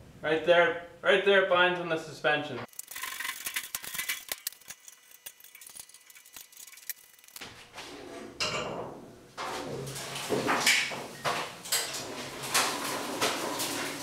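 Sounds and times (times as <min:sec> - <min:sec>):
metal clinking and rattling: 0:02.7 - 0:07.4.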